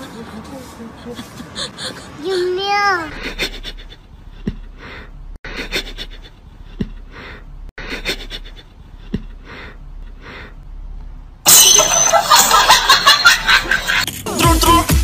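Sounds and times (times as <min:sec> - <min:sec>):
loud music: 0:13.7 - 0:15.0.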